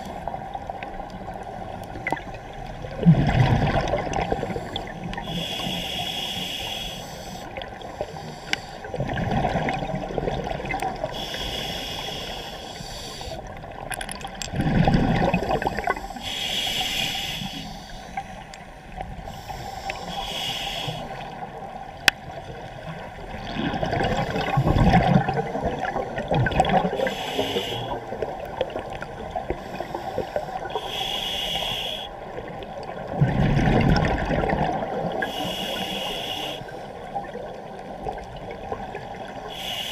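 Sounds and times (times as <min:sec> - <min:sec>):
exhaled air bubbling: 0:00.0 - 0:12.1, 0:13.4 - 0:17.2, 0:22.9 - 0:31.1, 0:31.8 - 0:39.7
regulator inhalation hiss: 0:04.4 - 0:08.9, 0:11.1 - 0:13.4, 0:15.9 - 0:18.4, 0:19.2 - 0:21.4, 0:27.0 - 0:28.1, 0:29.6 - 0:32.2, 0:35.2 - 0:36.9, 0:39.4 - 0:39.9.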